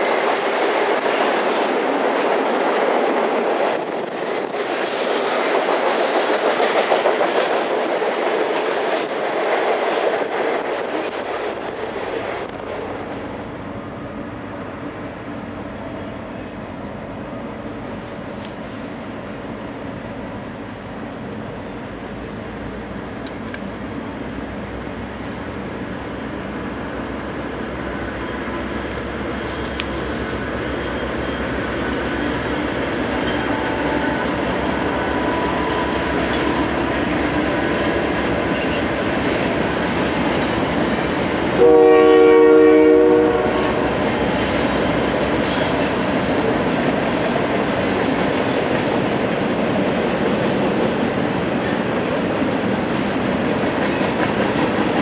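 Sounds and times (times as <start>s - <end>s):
diesel locomotive engine: 0.0s - 55.0s
train horn: 33.0s - 36.4s, 41.6s - 44.8s.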